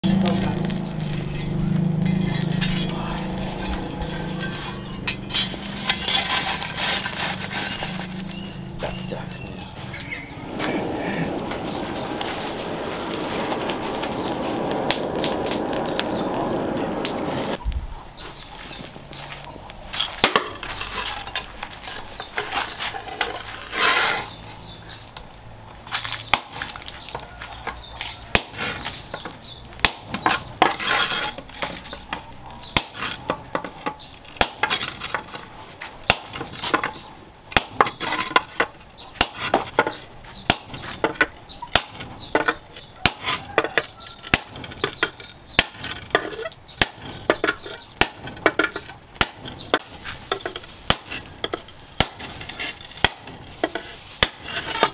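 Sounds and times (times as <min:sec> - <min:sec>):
hammer striking chisel on metal: 0:31.6 - 0:33.8, 0:39.2 - 0:52.4.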